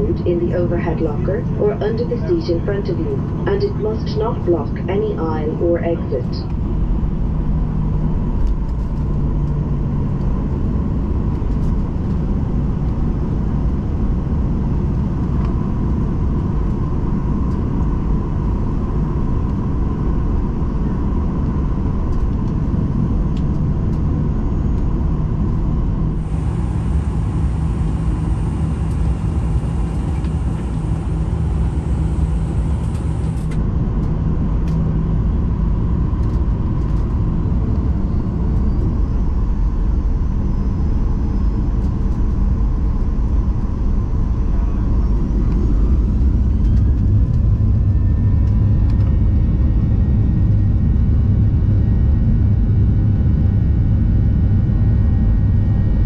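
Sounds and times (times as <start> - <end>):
faint steady hum: 0.0 - 7.0
airplane cabin engine rumble: 0.0 - 56.0.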